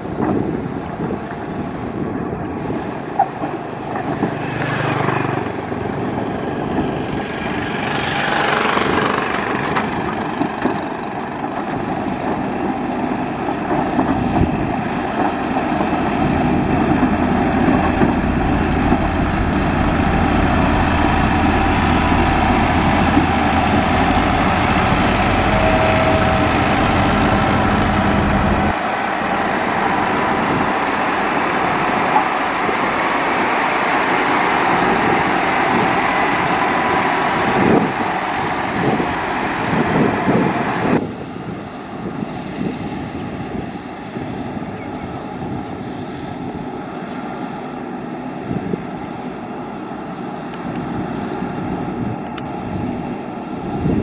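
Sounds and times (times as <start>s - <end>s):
diesel engine running under load: 5.2s - 31.8s
deep low hum: 17.3s - 28.7s.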